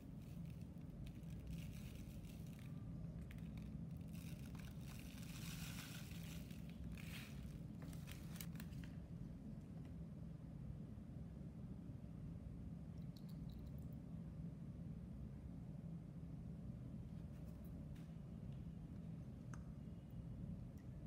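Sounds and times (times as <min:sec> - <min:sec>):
steady low hum: 0:00.0 - 0:21.0
plastic bags crinkling: 0:00.3 - 0:08.9.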